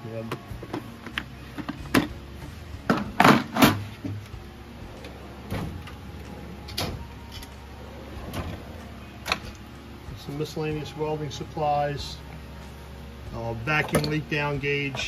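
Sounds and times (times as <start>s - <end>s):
metal drawers knocking and rattling: 2.8s - 4.2s, 5.4s - 6.0s, 13.8s - 14.2s
drawer sliding open: 2.9s - 4.3s, 4.9s - 9.6s.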